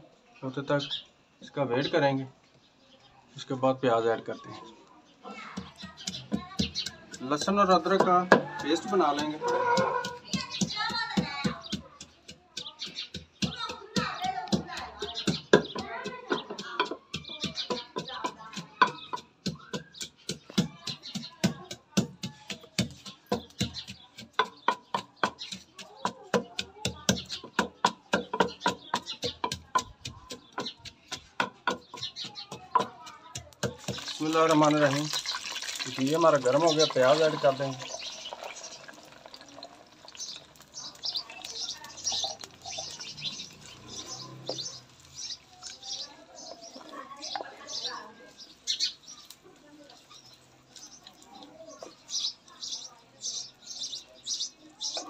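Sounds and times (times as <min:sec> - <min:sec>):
wooden spoon stirring: 0:04.5 - 0:52.7
pestle pounding in wooden mortar: 0:05.5 - 0:39.3, 0:40.1 - 0:47.4
onions sizzling in hot fat: 0:32.8 - 0:47.7, 0:48.4 - 0:52.6.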